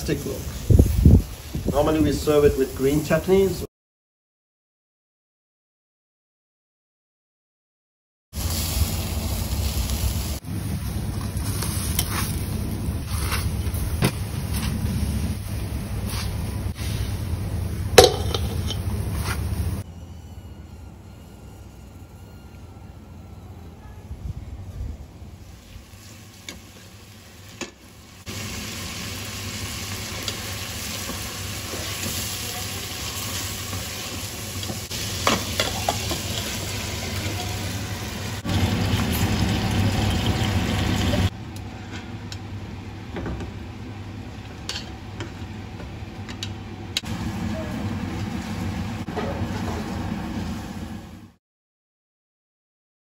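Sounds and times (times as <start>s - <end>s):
ladle clinking against pot: 18.0s - 18.8s
sauce sizzling in a pot: 25.4s - 41.3s.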